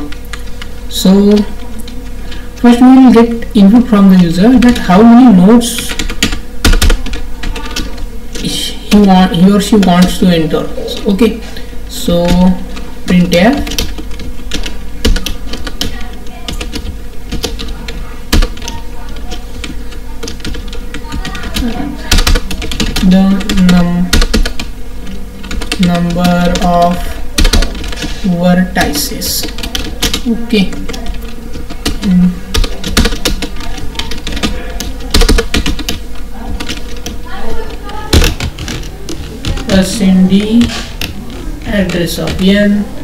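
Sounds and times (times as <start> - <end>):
steady low hum: 0.0 - 43.0
typing on computer keyboard: 5.7 - 9.1, 12.2 - 24.7, 25.4 - 28.2, 28.8 - 42.5.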